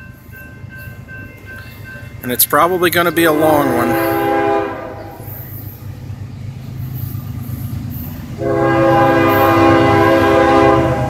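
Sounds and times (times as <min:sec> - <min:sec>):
diesel locomotive rumbling: 0:00.0 - 0:11.0
train air horn blast: 0:03.3 - 0:05.3, 0:08.4 - 0:11.0.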